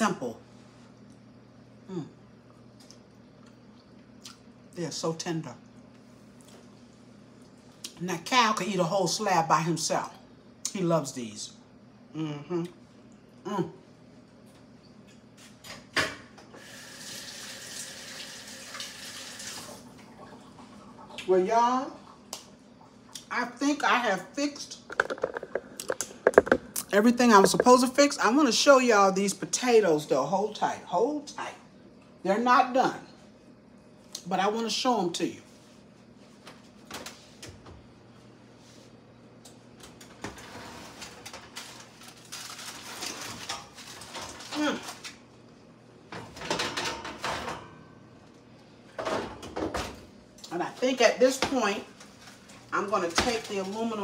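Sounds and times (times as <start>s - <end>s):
low steady hum: 0.0s - 16.5s, 19.8s - 54.0s
water running from a tap: 16.6s - 19.9s.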